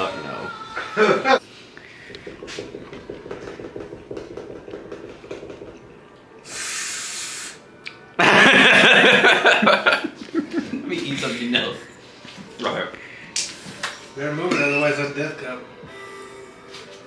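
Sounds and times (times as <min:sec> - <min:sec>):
man hissing breath: 0:06.4 - 0:07.7.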